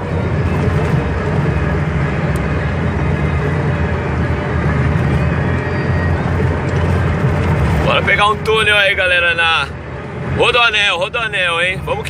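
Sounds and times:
tyre and road noise: 0.0 - 12.0
wheel bearing hum: 0.0 - 12.0.

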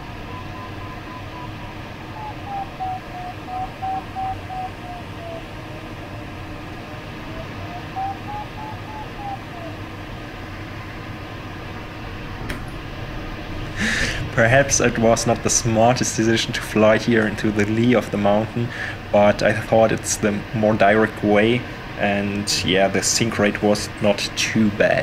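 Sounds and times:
electronic tone sliding in pitch: 0.0 - 10.0
airflow rushing: 0.0 - 19.7.

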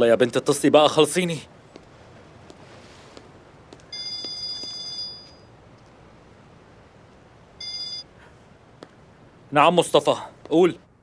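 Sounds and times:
phone ringing: 3.9 - 5.5, 7.6 - 8.1.

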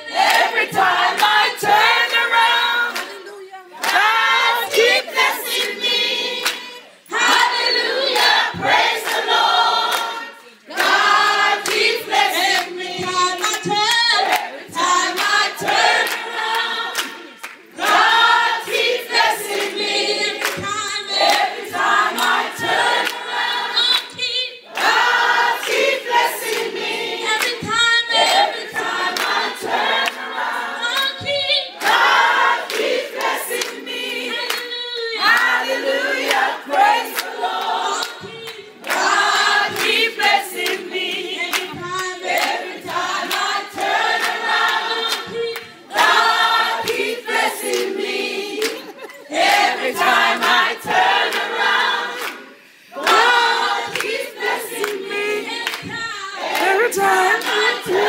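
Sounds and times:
women singing together: 0.0 - 58.0.

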